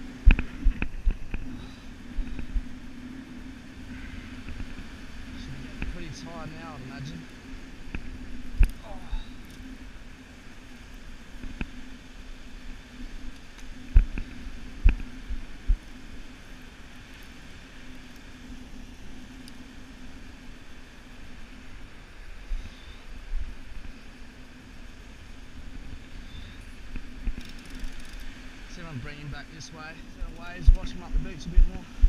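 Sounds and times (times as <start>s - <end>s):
small waves breaking on beach: 0.0s - 32.0s.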